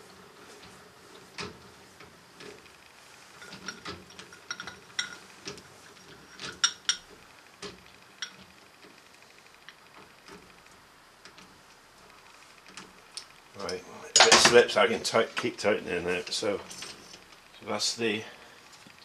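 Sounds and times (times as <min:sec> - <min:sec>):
sharp metal clanks: 0:14.1 - 0:14.8.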